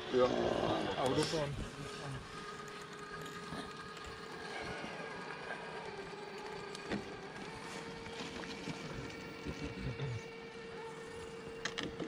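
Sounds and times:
electric motor and gears whining: 0.0s - 12.0s.

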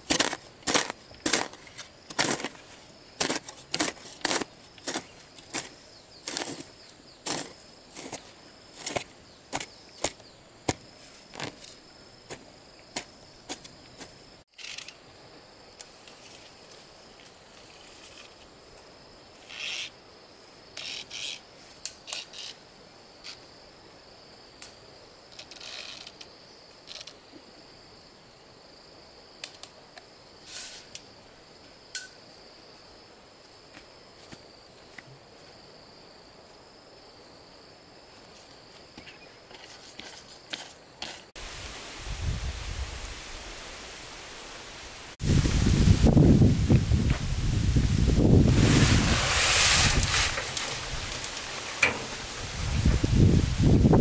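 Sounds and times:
hoe striking and scraping soil: 0.0s - 15.0s, 48.5s - 53.0s
high insect buzz: 0.0s - 29.5s, 30.1s - 54.0s.

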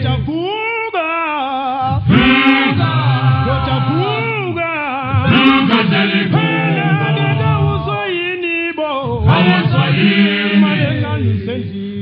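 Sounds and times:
male a cappella choir singing: 0.0s - 12.0s.

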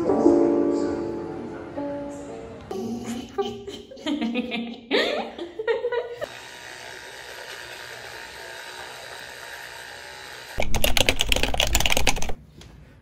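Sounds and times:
electric toothbrush buzzing: 6.2s - 10.8s
keyboard typing clicks: 10.6s - 12.4s.

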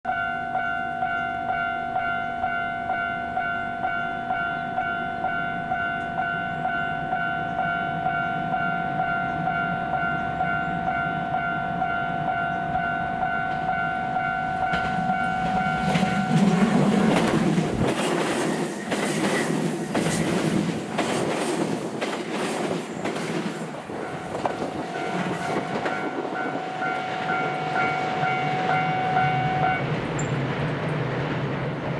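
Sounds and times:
pulsing ringing tone: 0.1s - 16.4s, 24.0s - 30.4s
electric train passing: 0.1s - 31.9s
wheels clacking over rail joints: 13.4s - 31.9s.

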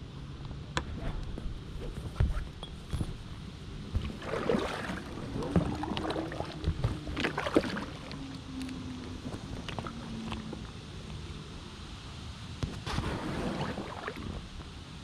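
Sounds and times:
paddle strokes splashing water: 3.8s - 10.8s, 12.7s - 14.8s.

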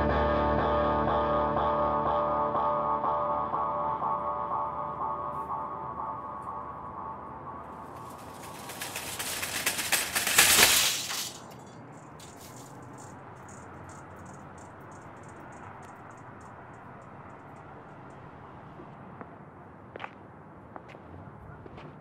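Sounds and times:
wire cart rattling on concrete: 7.7s - 15.9s.

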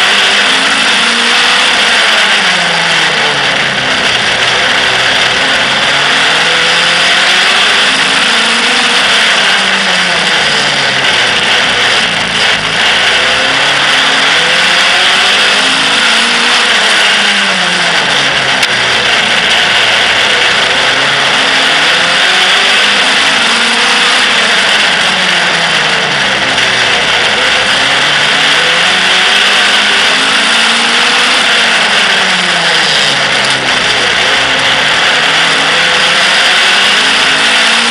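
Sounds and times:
loud rushing noise: 0.0s - 37.9s
race car engine revving: 0.0s - 37.9s.

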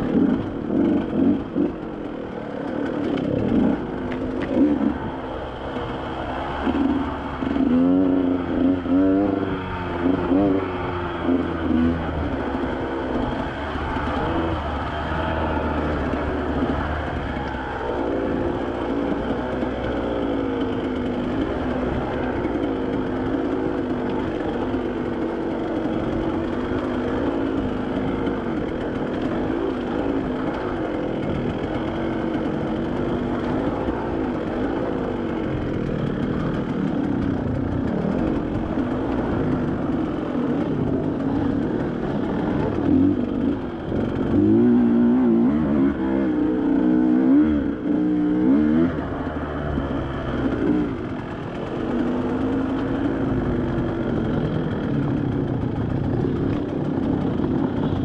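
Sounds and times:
off-road vehicle engine running: 0.0s - 58.0s.

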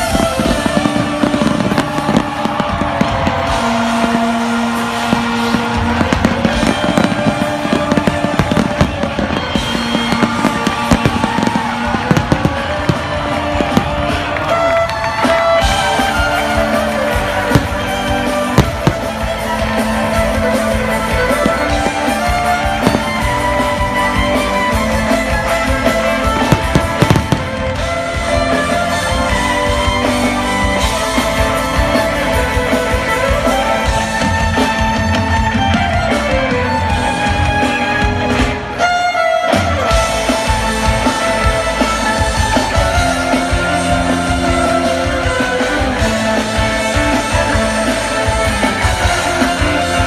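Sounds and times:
fireworks bangs: 0.0s - 29.3s
electric violin over band: 0.0s - 50.0s.

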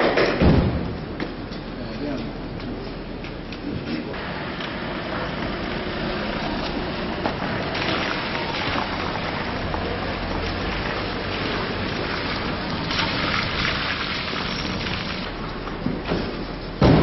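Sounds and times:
low engine rumble: 0.9s - 16.9s
tyres hissing on wet road: 4.2s - 15.5s.

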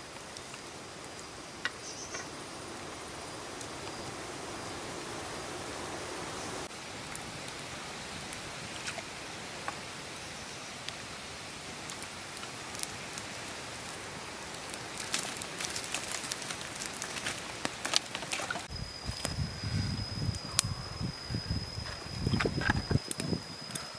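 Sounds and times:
embers crackling: 0.0s - 23.9s
steady hiss: 0.0s - 23.9s
sharp popping of fire: 6.6s - 23.9s.

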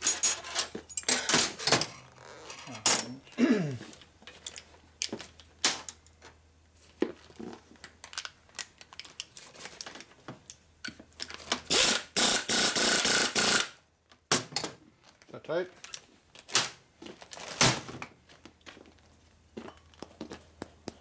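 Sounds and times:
tools and parts clattering: 0.0s - 3.3s, 3.9s - 6.0s
air impact wrench hammering: 11.7s - 13.8s.

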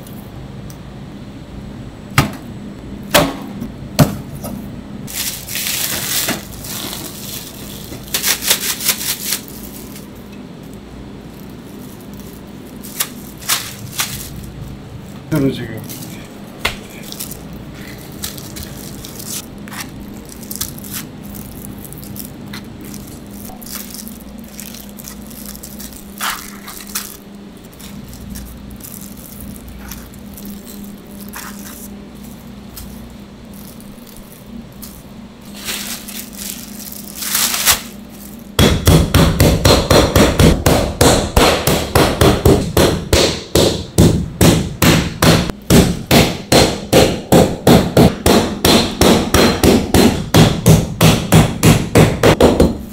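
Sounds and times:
kitchen hum: 0.0s - 52.9s
meat tenderizer pounding: 18.2s - 31.9s, 38.6s - 52.8s.

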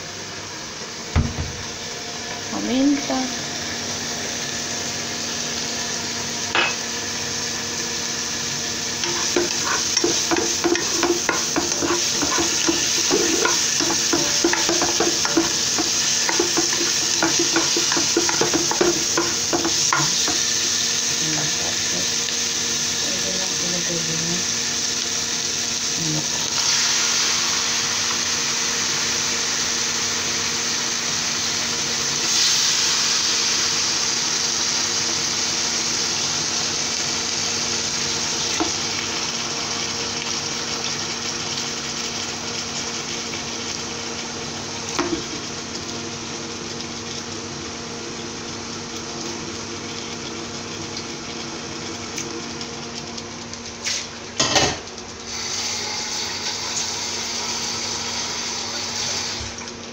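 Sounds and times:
chicken sizzling in hot oil: 0.0s - 59.9s
induction cooker hum: 0.0s - 59.9s
utensil knocking against pot: 9.1s - 20.4s.

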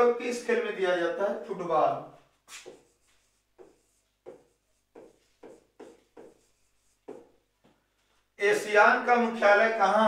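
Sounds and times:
scratchy writing strokes on board: 2.4s - 7.5s.

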